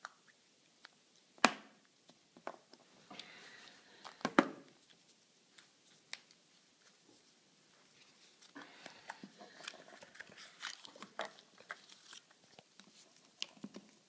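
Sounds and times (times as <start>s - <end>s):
faint rustling: 2.8s - 14.0s.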